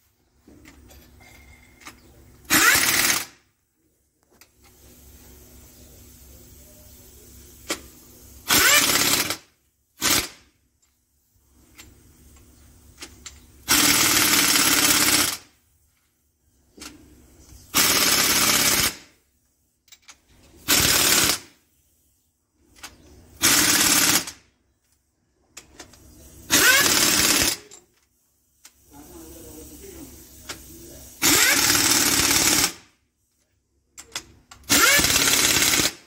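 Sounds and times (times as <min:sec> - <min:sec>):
pneumatic impact wrench hammering: 0:01.8 - 0:03.4, 0:07.6 - 0:10.6, 0:11.6 - 0:15.6, 0:17.7 - 0:19.2, 0:19.9 - 0:21.6, 0:22.7 - 0:24.5, 0:25.6 - 0:28.0, 0:31.2 - 0:33.0, 0:33.9 - 0:36.0.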